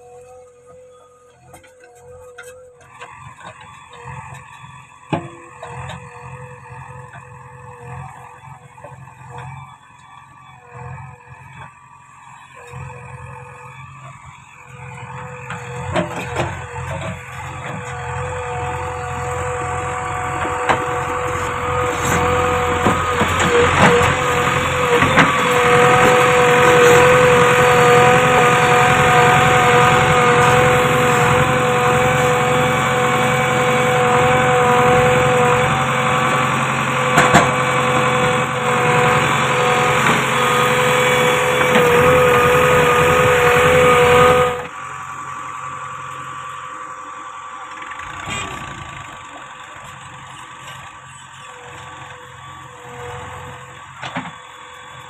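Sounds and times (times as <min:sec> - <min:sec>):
diesel engine running hard: 0:00.0 - 0:55.0.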